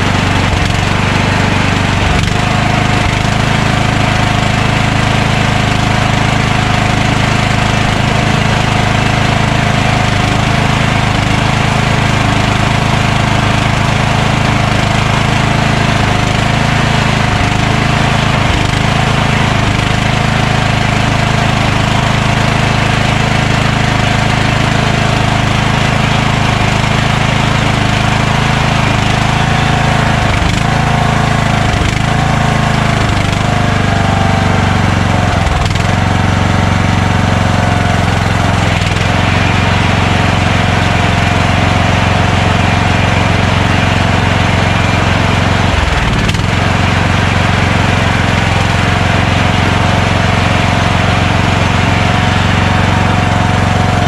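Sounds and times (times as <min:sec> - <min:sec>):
lawn tractor engine running: 0:00.0 - 0:54.0.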